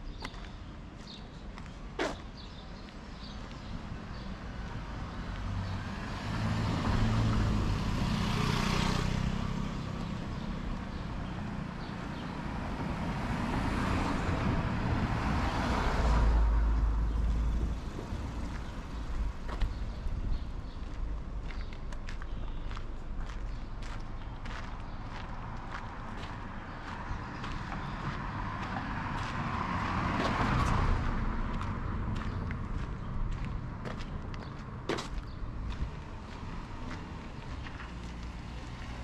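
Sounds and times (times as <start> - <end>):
deep rumbling vehicle pass: 5.3 - 39.0
vehicle engine passing: 5.4 - 19.8.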